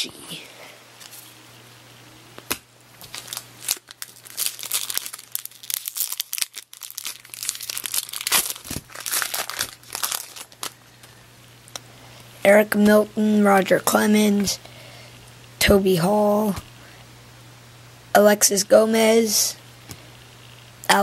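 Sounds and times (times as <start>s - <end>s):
foil wrapper crinkling and tearing: 3.0s - 11.2s.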